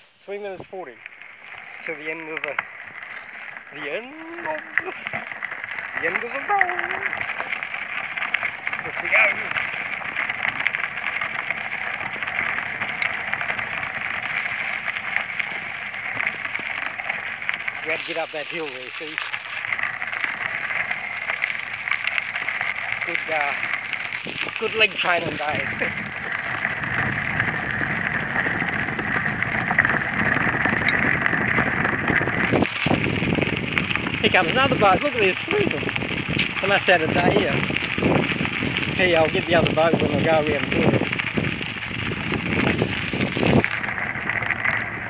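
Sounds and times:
bicycle riding hiss: 0.0s - 45.0s
fine crackle: 0.0s - 45.0s
wind rushing over microphone: 23.0s - 45.0s.

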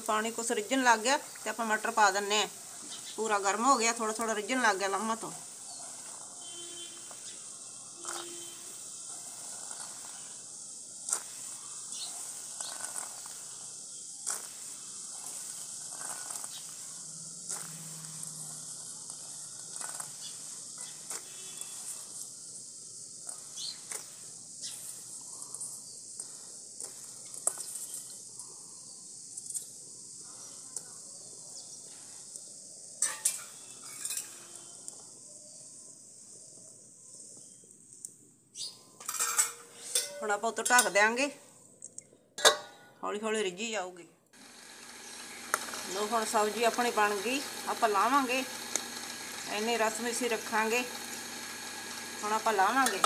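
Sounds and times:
steady high hiss: 0.0s - 41.6s, 44.4s - 53.0s
peas clicking in wok: 11.0s - 22.3s, 44.8s - 49.0s.

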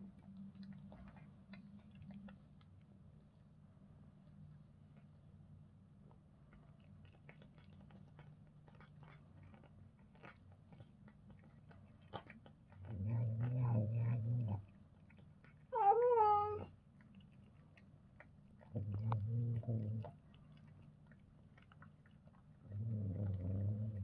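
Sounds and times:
cats chewing raw fish: 0.0s - 3.4s, 5.8s - 24.0s
low cat growl: 12.8s - 14.6s, 18.7s - 20.1s, 22.6s - 24.0s
wavering cat yowl: 15.8s - 16.7s.

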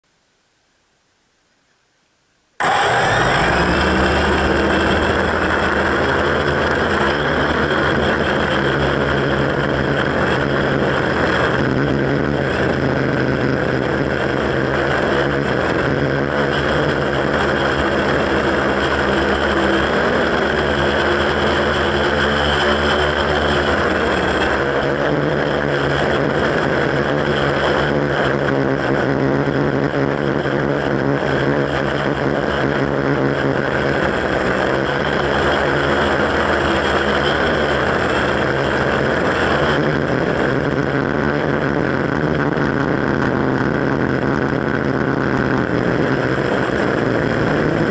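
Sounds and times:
drone propellers whirring: 2.6s - 47.9s.

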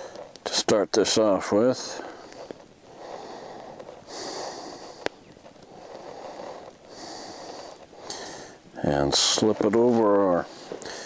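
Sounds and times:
man breathing through nose: 0.0s - 0.3s, 1.9s - 8.7s, 10.4s - 11.0s.

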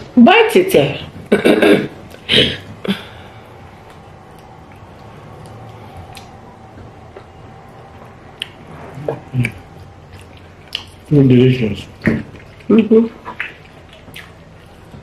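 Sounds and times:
food squishing: 2.0s - 15.0s
wet chewing and lip smacks: 3.7s - 11.2s, 11.8s - 15.0s
sharp mouth clicks: 3.8s - 6.4s, 8.4s - 11.0s, 12.0s - 14.4s.

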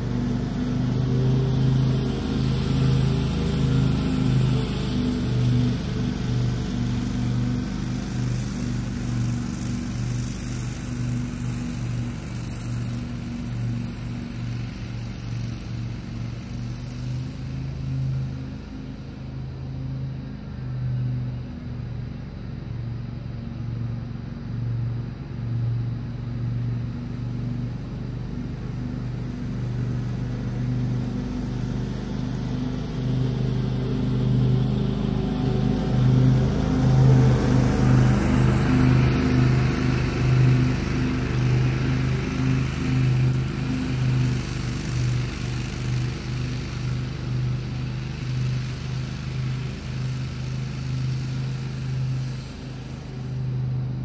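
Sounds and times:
lawn mower running: 0.0s - 54.0s.

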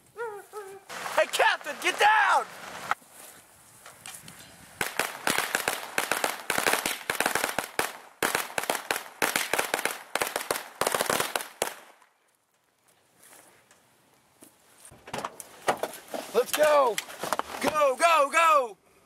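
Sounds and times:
firecrackers popping rapidly: 4.8s - 12.2s.

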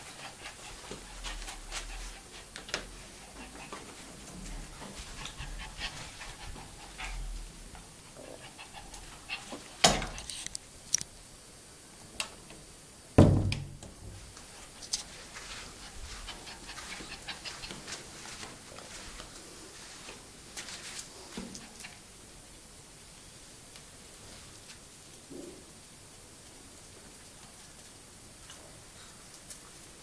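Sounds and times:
pet clicks and scuffles: 9.8s - 11.1s
loud knocks: 13.2s - 14.2s.

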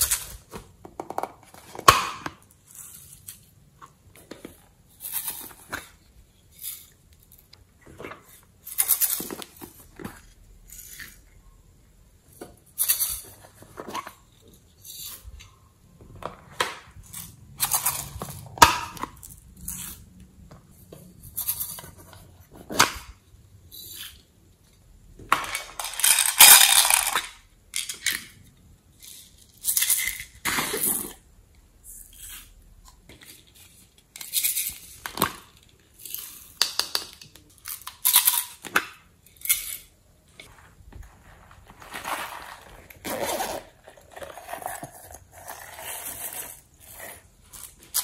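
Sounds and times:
plastic containers rustling: 40.3s - 45.4s.

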